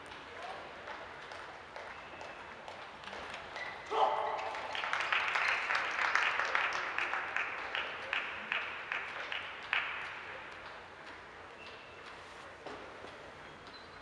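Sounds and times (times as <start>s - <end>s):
spectators applauding: 4.0s - 10.2s.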